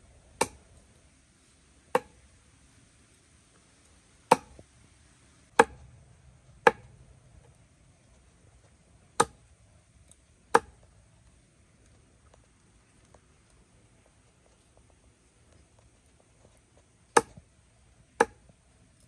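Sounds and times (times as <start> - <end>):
cleaver chopping on wooden board: 0.4 - 0.6, 2.0 - 2.2, 4.3 - 4.6, 5.6 - 5.9, 6.6 - 6.9, 9.2 - 9.4, 10.5 - 10.8, 17.1 - 17.4, 18.2 - 18.5.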